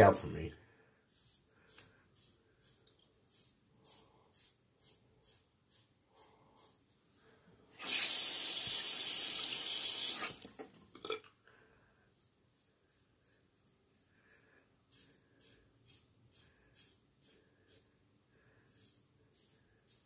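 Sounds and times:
bathroom tap running: 0:07.8 - 0:10.8.

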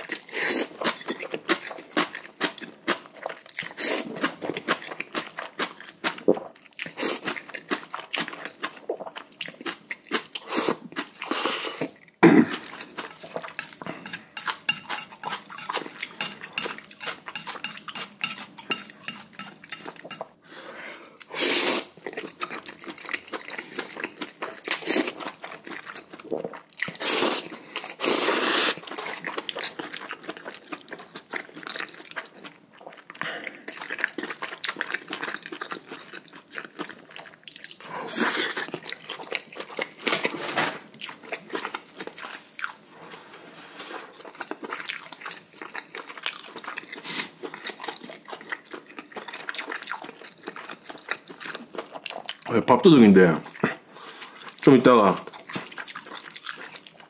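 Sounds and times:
chewing and crunching: 0:00.0 - 0:20.4, 0:21.1 - 0:57.0
noodles slurped: 0:21.1 - 0:30.8.

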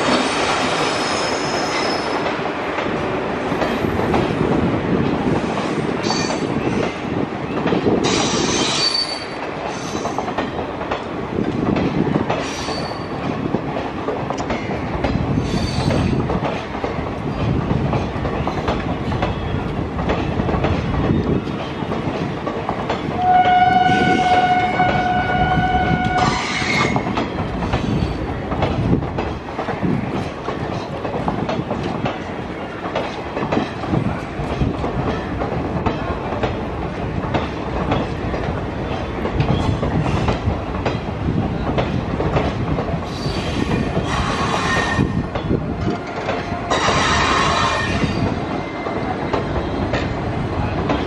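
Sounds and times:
train rumbling: 0:00.0 - 0:51.0
wheels clacking over rail joints: 0:06.0 - 0:51.0
train horn: 0:23.2 - 0:27.0, 0:46.6 - 0:48.1.

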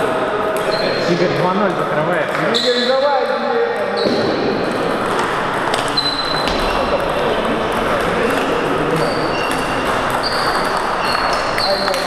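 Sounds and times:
murmur of voices: 0:00.0 - 0:12.0
table tennis balls clicking: 0:04.6 - 0:12.0.

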